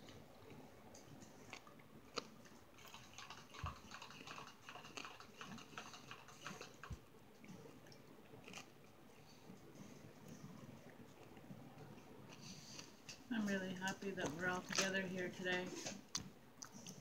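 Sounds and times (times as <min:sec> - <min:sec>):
person chewing: 0:00.4 - 0:13.0, 0:16.0 - 0:17.0.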